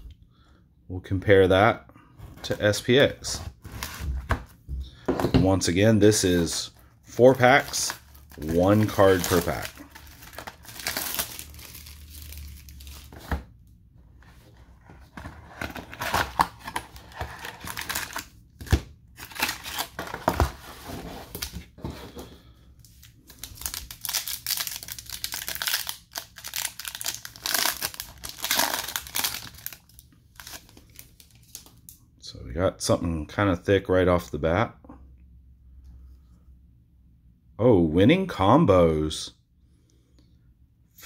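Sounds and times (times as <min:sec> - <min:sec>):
plastic wrappers crinkling: 0:06.4 - 0:13.3, 0:15.2 - 0:18.3, 0:19.2 - 0:20.6, 0:22.9 - 0:31.9.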